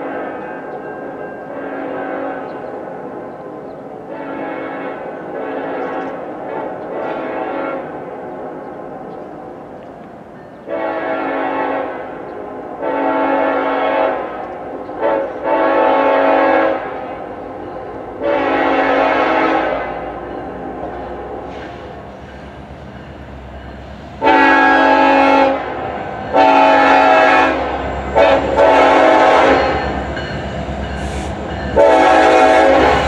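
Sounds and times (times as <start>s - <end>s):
locomotive air horn blasts: 1.5s - 2.6s, 4.1s - 8.0s, 10.6s - 14.4s, 15.0s - 17.2s, 18.2s - 20.3s, 24.2s - 30.0s, 30.8s - 33.0s
locomotive engine rumble: 14.2s - 33.0s.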